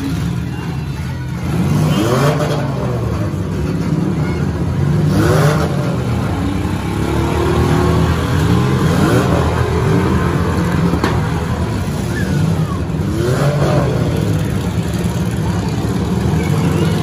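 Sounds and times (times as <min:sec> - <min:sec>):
car engines revving: 0:00.0 - 0:17.0.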